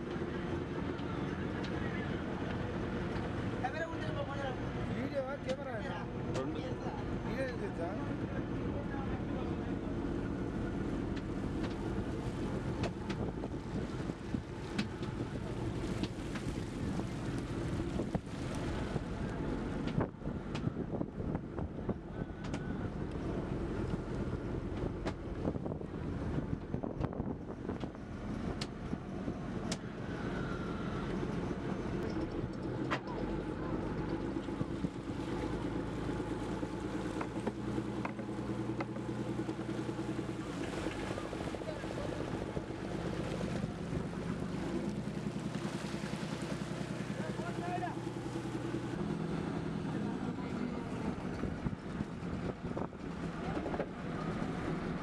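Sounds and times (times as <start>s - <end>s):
boat engine rumble: 0.0s - 55.0s
water washing around hull: 0.0s - 55.0s
wind buffeting microphone: 11.3s - 30.2s, 48.2s - 55.0s.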